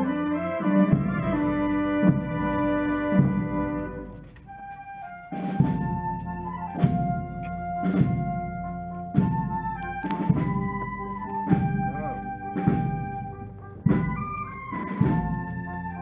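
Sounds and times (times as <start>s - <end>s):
brass band march: 0.0s - 16.0s
bass drum beats: 5.6s - 16.0s.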